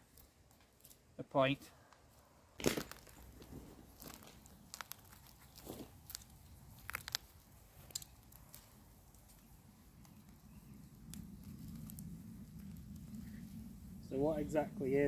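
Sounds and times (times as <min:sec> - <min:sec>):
faint clicks and ticks: 0:03.4 - 0:13.9.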